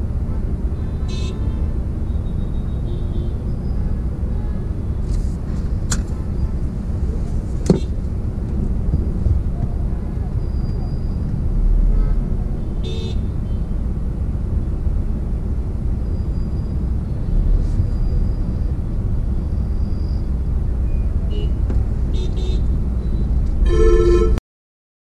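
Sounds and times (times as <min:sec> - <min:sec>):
traffic rumble from inside a car: 0:00.0 - 0:24.3
car horn toots: 0:23.6 - 0:24.4.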